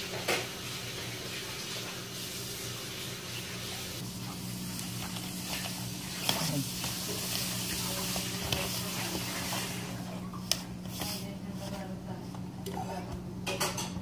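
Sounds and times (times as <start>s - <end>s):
hands kneading dough: 4.0s - 13.3s.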